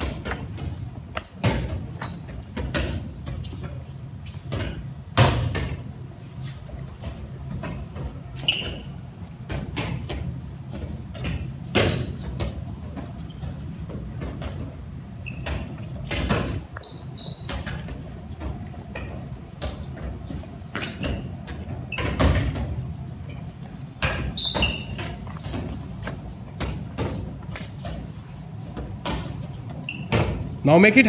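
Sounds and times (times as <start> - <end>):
short high squeaks: 2.0 - 2.4, 8.4 - 9.0, 15.2 - 15.7, 16.8 - 17.7, 23.8 - 25.0, 29.8 - 30.2.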